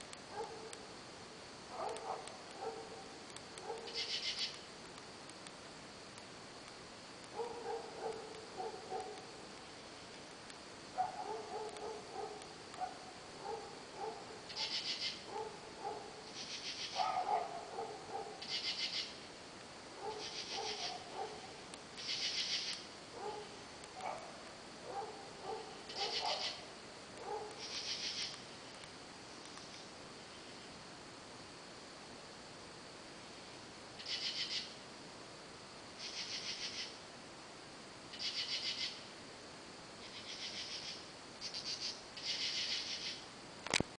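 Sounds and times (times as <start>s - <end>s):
high thin insect trill: 0.0s - 30.8s, 33.1s - 34.9s, 35.9s - 37.0s, 38.1s - 39.2s, 40.0s - 43.8s
insects chirping: 0.0s - 43.9s
dogs barking: 0.3s - 0.8s, 1.7s - 4.0s, 7.3s - 9.3s, 11.0s - 14.7s, 15.3s - 16.2s, 17.0s - 18.4s, 20.0s - 21.6s, 23.1s - 26.6s, 27.2s - 27.6s.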